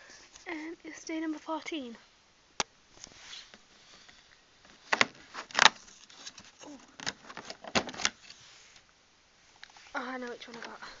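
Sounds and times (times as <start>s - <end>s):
cardboard snapping and rustling: 4.7s - 8.2s.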